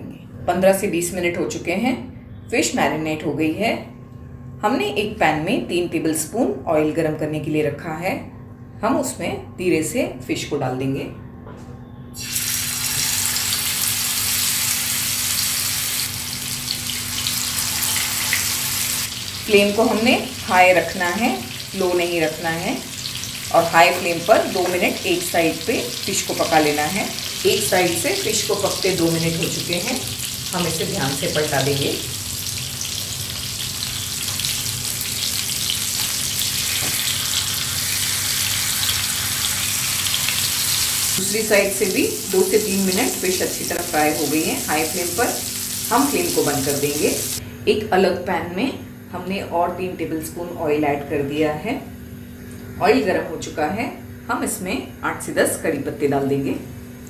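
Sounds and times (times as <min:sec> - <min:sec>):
fish sizzling in hot oil: 0:12.2 - 0:47.4.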